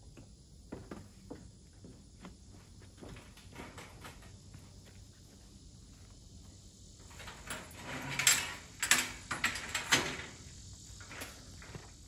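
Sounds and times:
metal mesh gate rattling and clanking: 7.1 - 10.4.

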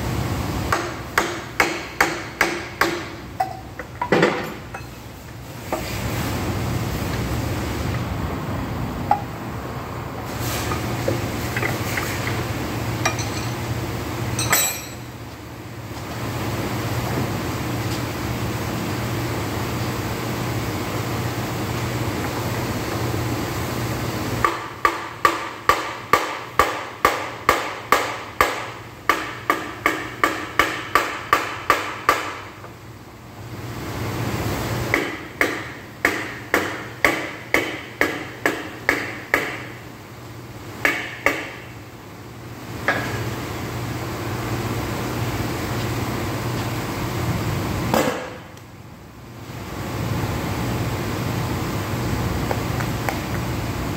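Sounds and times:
hammer striking metal: 0.7 - 5.0, 14.4 - 15.1.

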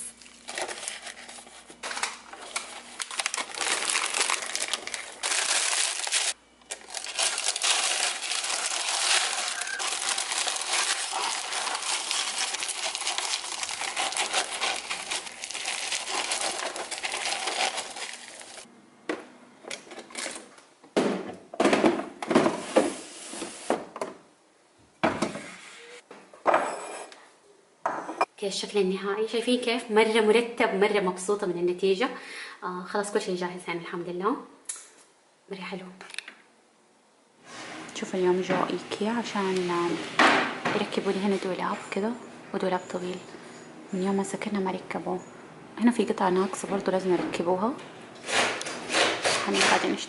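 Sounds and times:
paper crinkling: 0.2 - 18.7
resin lumps rattling in plastic: 1.9 - 18.6.

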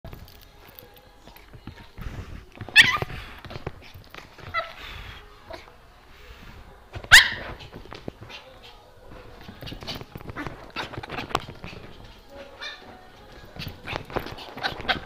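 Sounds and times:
small dog yipping: 2.7 - 3.1, 7.1 - 7.6.

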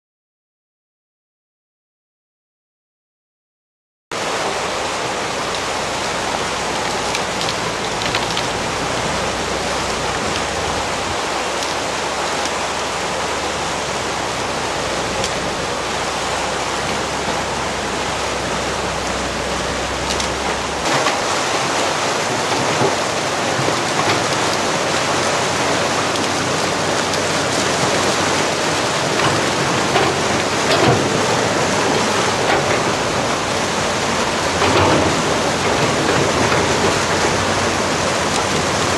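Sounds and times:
excavator engine hum: 4.2 - 38.9
fast-flowing floodwater rushing: 4.2 - 38.9.

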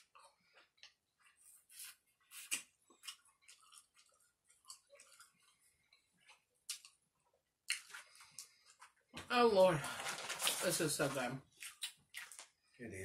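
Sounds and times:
wet lip smacks and chewing: 2.3 - 7.0, 7.6 - 8.6, 11.5 - 12.5.

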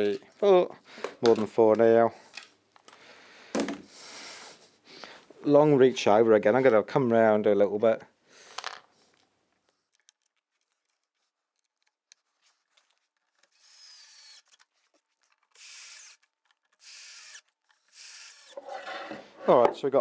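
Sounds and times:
cordless drill whining: 13.5 - 14.7, 15.5 - 18.7.

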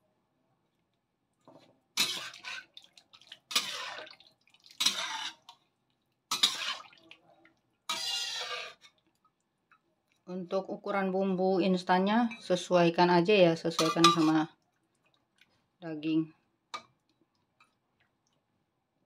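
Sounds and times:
metal ladle scraping wok: 2.0 - 2.8, 3.5 - 4.1, 4.8 - 5.5, 6.3 - 6.9, 7.9 - 9.0, 13.7 - 14.4.

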